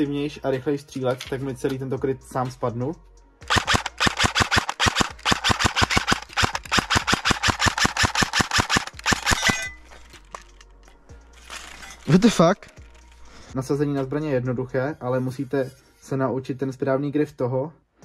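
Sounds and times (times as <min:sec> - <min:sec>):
airsoft rifle shots: 0:03.5 - 0:09.6.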